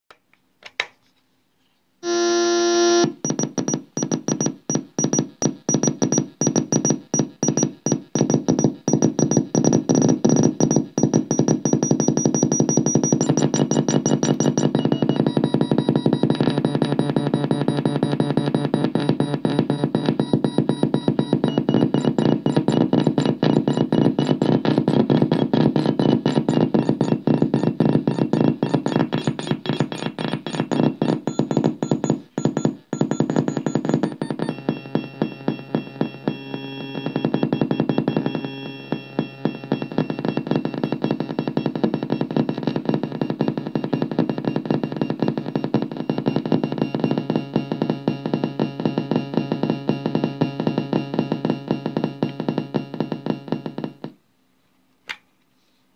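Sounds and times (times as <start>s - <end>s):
synthesizer repeating electronic notes: 2.0s - 54.1s.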